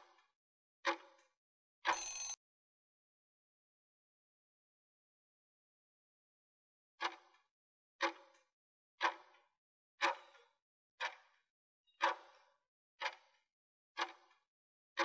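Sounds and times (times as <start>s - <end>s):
clock-like ticking with ring: 1.9s - 2.4s.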